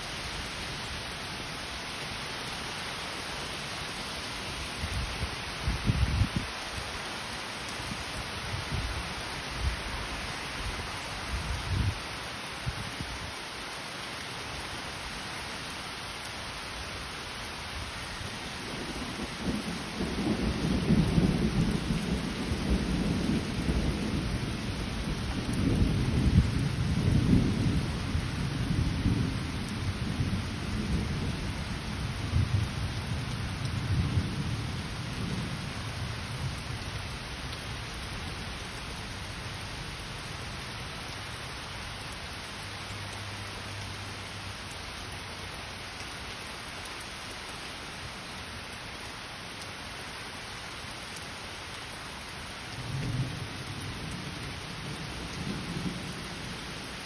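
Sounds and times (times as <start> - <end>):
heavy rain falling: 0.0 - 57.0
low thunder rumble: 18.6 - 31.5.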